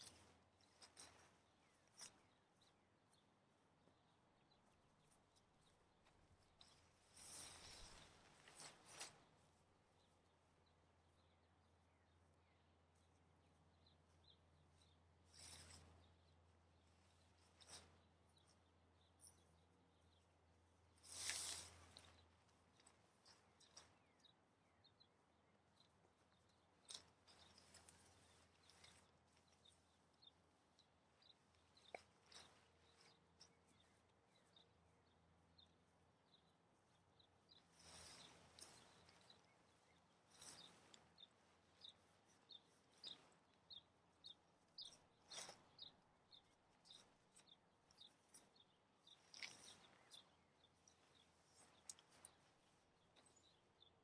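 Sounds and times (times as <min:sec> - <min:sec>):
tent poles clicking: 0:00.0 - 0:03.2, 0:04.9 - 0:09.5, 0:20.9 - 0:24.1, 0:26.3 - 0:34.4, 0:37.7 - 0:43.7, 0:49.1 - 0:53.3
bird chirping: 0:00.0 - 0:54.0
tent fabric rustling: 0:06.1 - 0:10.2, 0:20.9 - 0:24.0.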